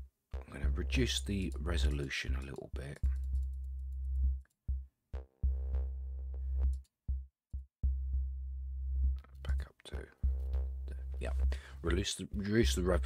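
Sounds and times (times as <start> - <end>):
deep electronic bass line: 0.3 - 13.0
drum machine hits: 0.4 - 2.4, 4.2 - 5.9, 7.1 - 8.2.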